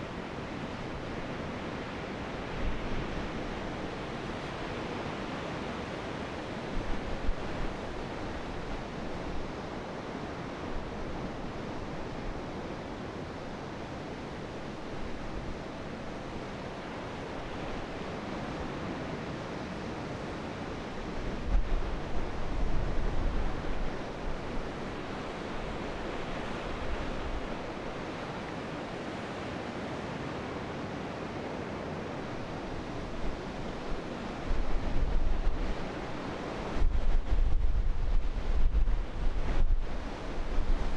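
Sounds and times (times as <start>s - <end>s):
open sea wash: 0.0s - 40.9s
wind: 0.0s - 40.9s
wind buffeting microphone: 32.7s - 40.9s.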